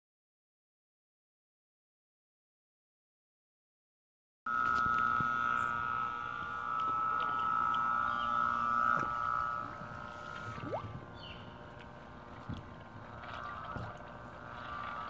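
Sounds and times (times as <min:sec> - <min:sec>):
pump motor whining: 0:04.5 - 0:15.0.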